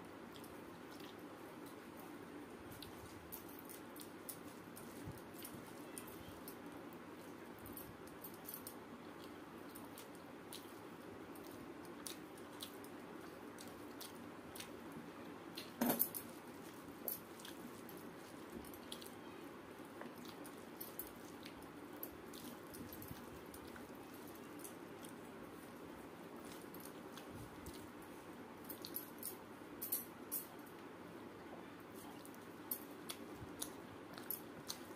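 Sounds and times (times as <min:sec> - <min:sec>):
chewing: 0:00.3 - 0:14.9, 0:15.5 - 0:30.6, 0:31.6 - 0:34.9.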